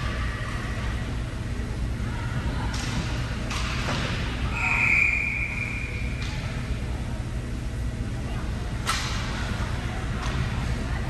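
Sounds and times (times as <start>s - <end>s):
ice rink hum: 0.0s - 11.0s
referee's whistle blast: 4.5s - 6.1s.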